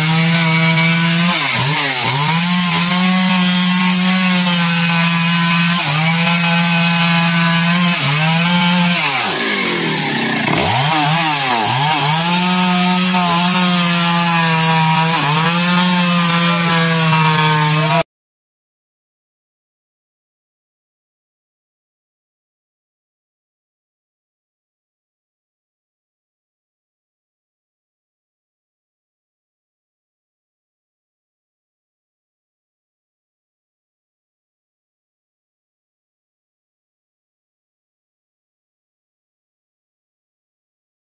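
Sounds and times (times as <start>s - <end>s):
chainsaw cutting wood: 0.0s - 18.1s.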